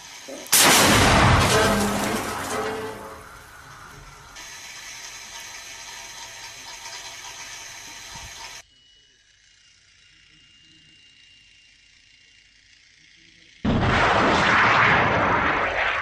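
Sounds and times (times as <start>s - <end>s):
missile hiss with high whine: 13.7s - 16.0s.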